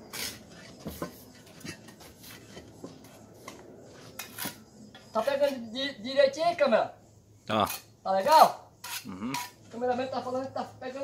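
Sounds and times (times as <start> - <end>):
trowel scraping mortar: 0.0 - 4.6, 7.6 - 7.9, 8.8 - 9.8.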